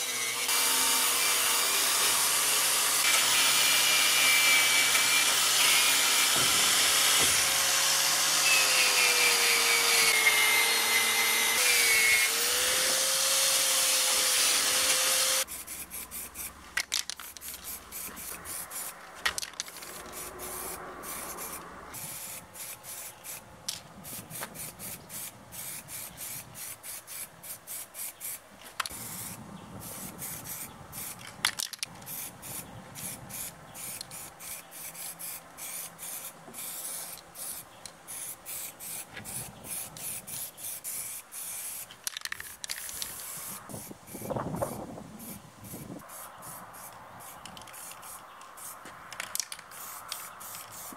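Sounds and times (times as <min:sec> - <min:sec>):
power tool hissing and humming: 0:00.0 - 0:15.5
hand scraping metal: 0:04.9 - 0:10.1.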